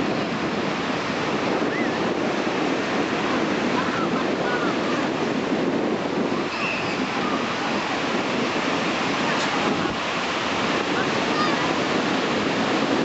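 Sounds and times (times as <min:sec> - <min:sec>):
ocean surf breaking on beach: 0:00.0 - 0:13.0.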